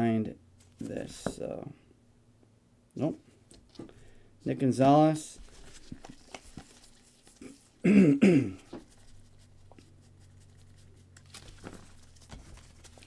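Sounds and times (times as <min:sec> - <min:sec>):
trading cards clicking and rustling: 0:05.4 - 0:07.5, 0:10.4 - 0:13.0.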